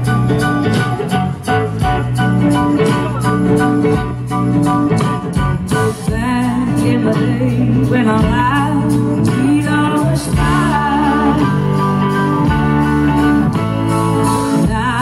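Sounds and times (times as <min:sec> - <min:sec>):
live blues-rock band playing: 0:00.0 - 0:15.0
woman singing: 0:05.9 - 0:12.1, 0:14.4 - 0:15.0.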